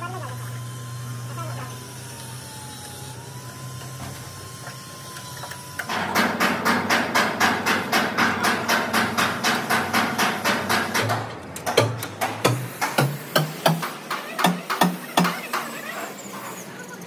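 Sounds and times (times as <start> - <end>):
sharp hammer-like strikes: 5.9 - 15.4.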